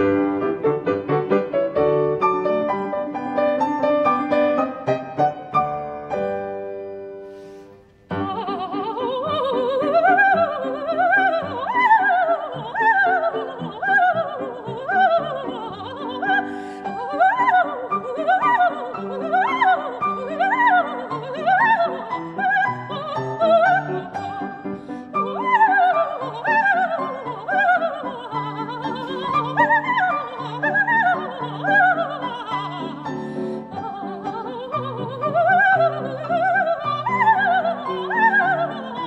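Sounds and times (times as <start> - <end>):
grand piano playing: 0.0 - 7.4.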